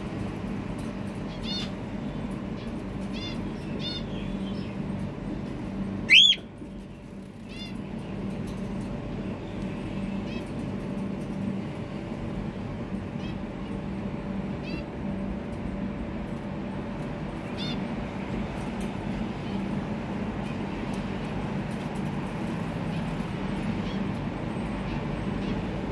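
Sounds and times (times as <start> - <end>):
steady low hum: 0.0 - 25.9
cockatiel screech: 6.1 - 6.4
cockatiels chirping: 6.1 - 6.4.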